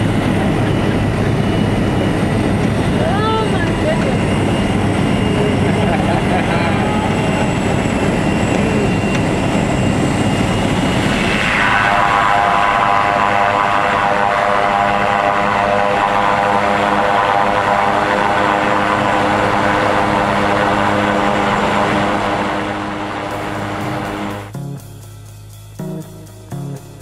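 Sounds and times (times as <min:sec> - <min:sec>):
aircraft engine and propeller: 0:00.0 - 0:27.0.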